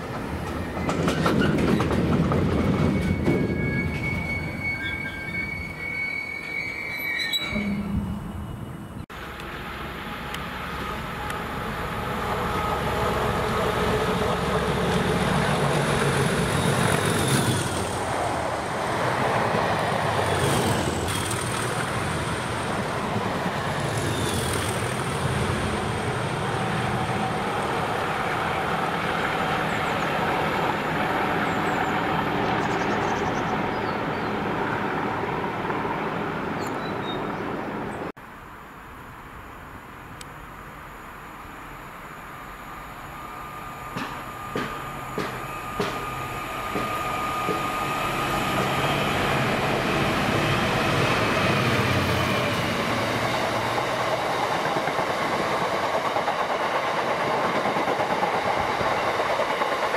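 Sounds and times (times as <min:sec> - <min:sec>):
wheels rumbling on rail: 0:00.0 - 0:38.1, 0:39.8 - 0:59.9
diesel locomotive engines: 0:00.0 - 0:59.9
high squeals and clicks: 0:00.5 - 0:08.7.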